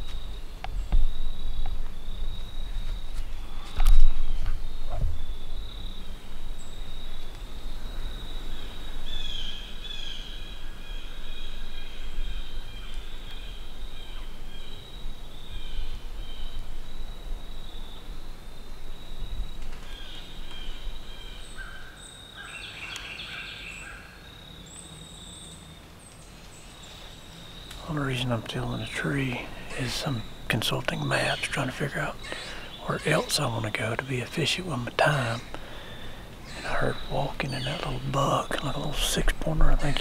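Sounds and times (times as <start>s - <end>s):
insects trilling: 0.0s - 40.0s
chirping calls: 19.1s - 40.0s.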